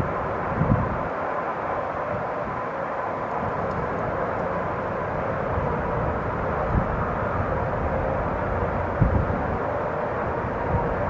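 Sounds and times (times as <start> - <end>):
steady wind rushing: 0.0 - 11.0
wind buffeting microphone: 0.0 - 11.0.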